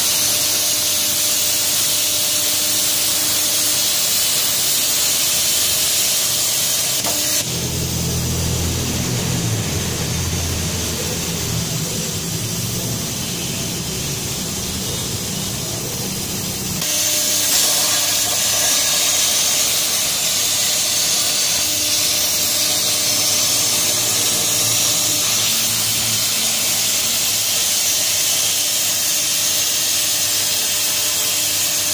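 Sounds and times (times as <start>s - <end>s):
plasma torch hissing: 0.0s - 31.9s
low hum: 7.1s - 16.8s.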